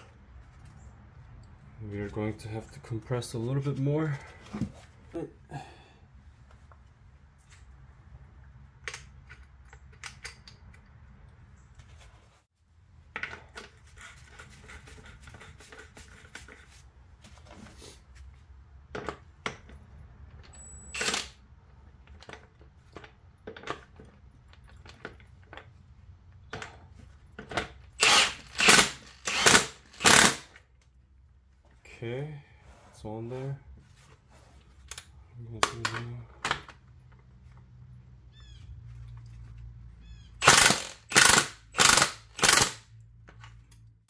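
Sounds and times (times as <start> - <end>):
metal clicks and clanks of tools: 8.8 - 11.0.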